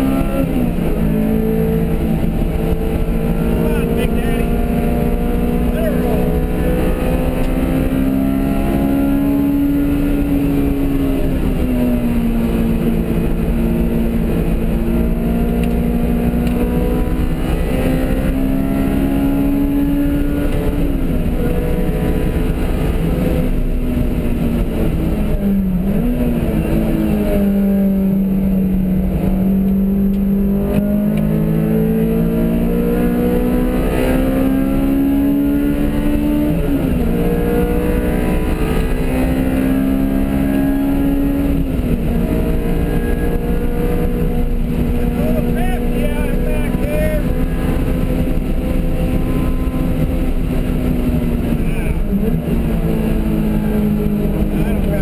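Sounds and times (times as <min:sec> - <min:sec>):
car engine at speed: 0:00.0 - 0:55.0
road and wind noise: 0:00.0 - 0:55.0.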